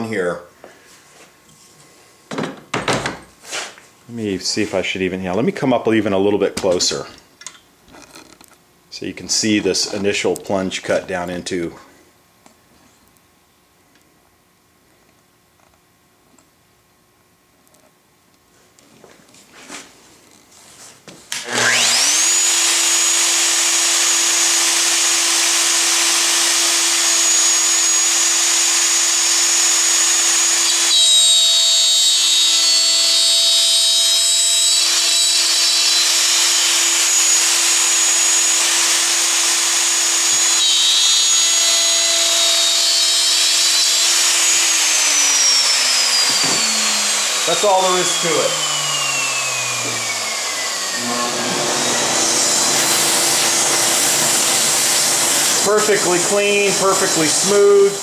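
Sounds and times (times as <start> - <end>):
router bit cutting wood: 21.3 - 58.0
router motor whining: 21.3 - 58.0.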